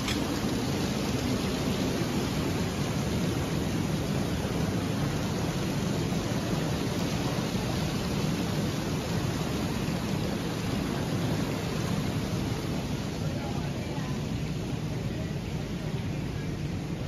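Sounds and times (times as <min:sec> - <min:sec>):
water rushing into lock: 0:00.0 - 0:17.0.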